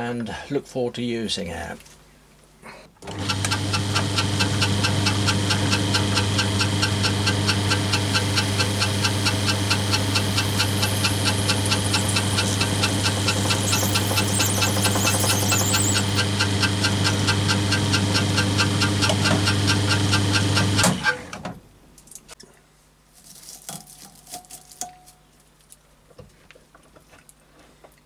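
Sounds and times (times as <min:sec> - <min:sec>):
bench drill drilling plastic: 0:03.1 - 0:21.2.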